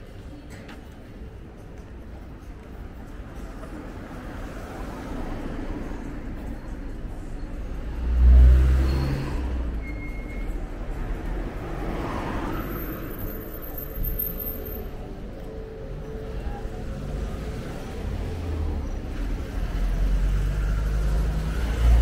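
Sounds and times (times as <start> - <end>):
car passing by: 7.9 - 9.8, 11.0 - 13.3.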